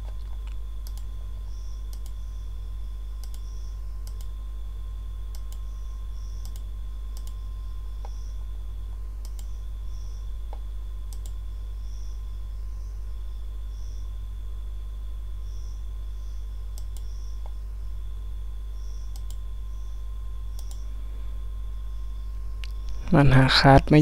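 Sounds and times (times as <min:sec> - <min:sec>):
keyboard and mouse clicks: 0:00.0 - 0:01.1, 0:03.2 - 0:04.3, 0:06.4 - 0:07.4, 0:09.2 - 0:09.5, 0:10.5 - 0:11.4, 0:19.1 - 0:19.4, 0:20.6 - 0:20.8
low electrical hum: 0:00.0 - 0:24.0.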